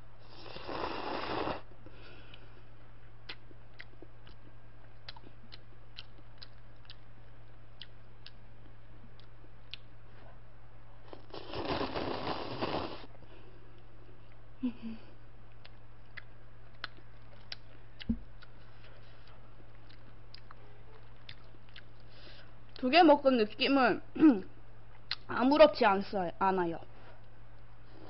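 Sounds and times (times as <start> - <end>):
person slurping noodles: 0.3 - 1.6, 11.1 - 13.1
soft chewing clicks: 1.8 - 10.3, 15.4 - 22.9, 24.9 - 25.3.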